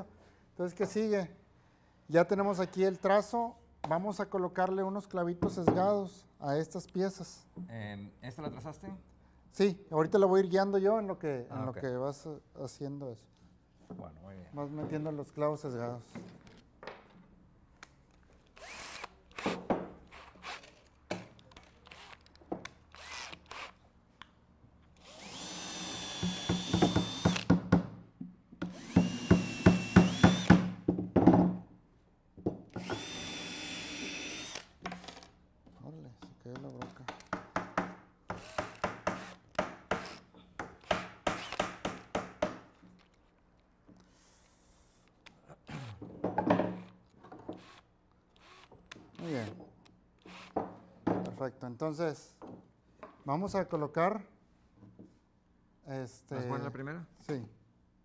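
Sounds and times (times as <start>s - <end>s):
cordless drill boring wood: 18.6s - 20.7s, 21.8s - 22.3s, 22.9s - 23.8s, 25.0s - 27.6s, 28.6s - 30.7s, 32.8s - 34.7s, 38.3s - 39.4s, 40.8s - 41.8s, 47.5s - 47.8s, 48.4s - 49.5s, 50.2s - 50.6s
hammer driving nails into wood: 25.9s - 28.0s, 28.6s - 31.6s, 36.6s - 42.8s.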